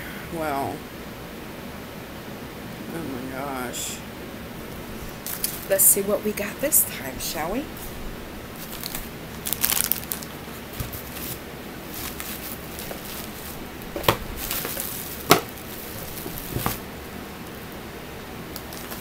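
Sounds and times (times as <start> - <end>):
packaging rustling and crinkling: 5.0 - 5.8, 7.8 - 17.0, 18.4 - 19.0.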